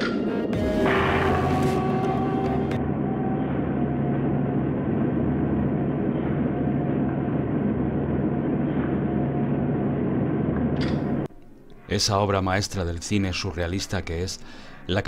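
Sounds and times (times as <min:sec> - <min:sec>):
deep hum: 0:00.0 - 0:11.3
low industrial rumble: 0:00.6 - 0:11.3.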